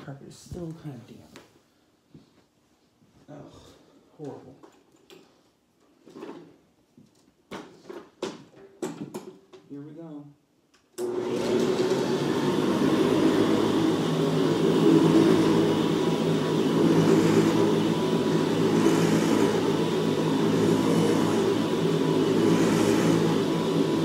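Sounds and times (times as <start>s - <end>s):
vacuum cleaner running over carpet: 11.0s - 24.0s.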